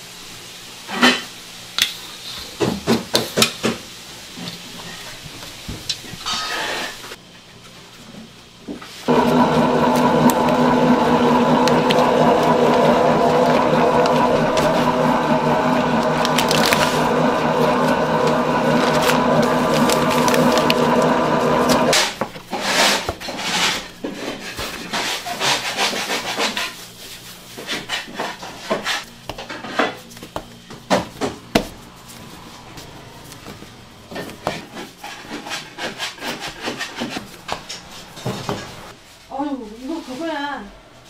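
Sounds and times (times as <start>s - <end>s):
dough rubbing and scraping: 8.9s - 40.4s
steady hum: 9.1s - 22.0s.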